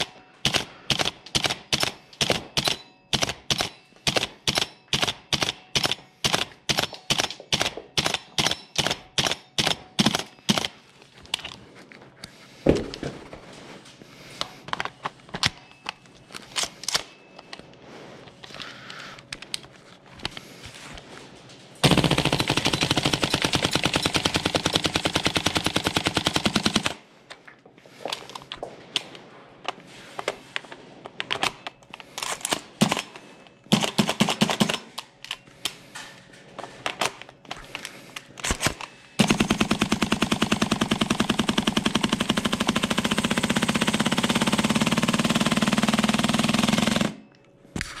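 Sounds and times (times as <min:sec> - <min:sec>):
airsoft rifle full-auto bursts: 0:00.0 - 0:10.8, 0:21.8 - 0:27.0, 0:33.7 - 0:35.0, 0:38.5 - 0:47.3.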